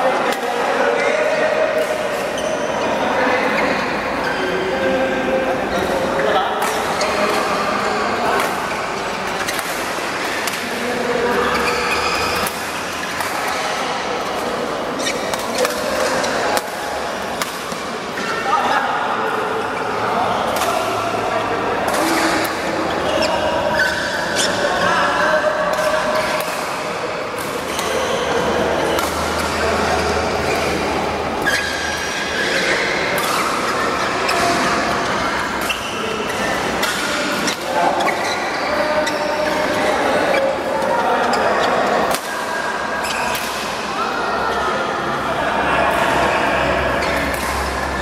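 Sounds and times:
noisy background: 0.0s - 48.0s
steady din in large hall: 0.0s - 48.0s
shoes squeaking on court floor: 2.2s - 4.6s, 11.3s - 13.8s, 14.5s - 16.4s, 22.0s - 24.9s, 27.6s - 42.0s
badminton rackets hitting shuttlecock: 6.5s - 7.1s, 8.3s - 10.8s, 11.5s - 14.4s, 15.0s - 18.3s, 20.4s - 20.9s, 25.7s - 27.9s, 28.7s - 30.8s, 31.4s - 41.4s, 42.0s - 42.5s, 43.3s - 43.8s, 47.0s - 47.6s.

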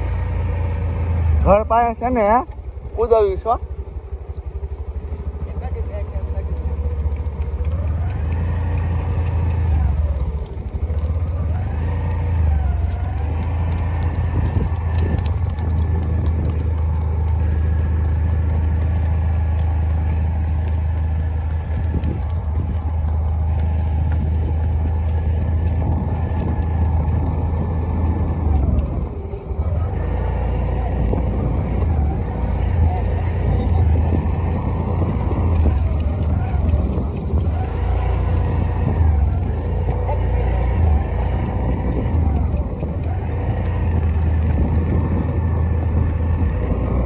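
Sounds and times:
motorcycle engine running: 0.0s - 47.0s
wind rumble on microphone: 0.0s - 47.0s.

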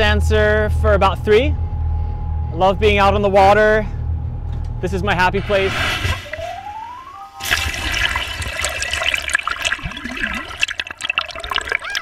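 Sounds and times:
brief rising tone: 5.3s - 7.5s
water sloshing and bubbling: 6.1s - 12.0s.

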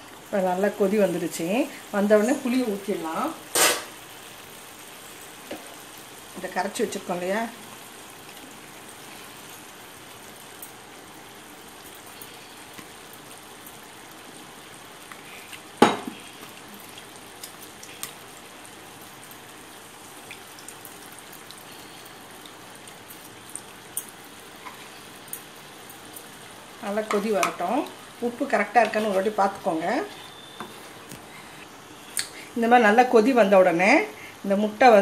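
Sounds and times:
gravy simmering and bubbling: 7.5s - 29.4s.

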